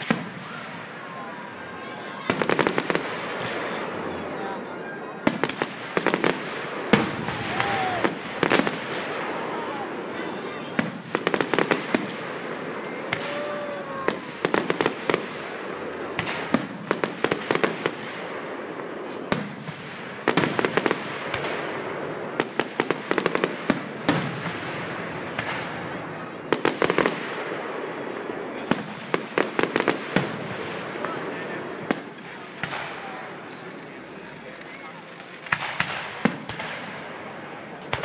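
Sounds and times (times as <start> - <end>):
fireworks bursting: 0.0 - 38.0
sharp pops and crackles: 25.4 - 25.8, 31.9 - 36.9.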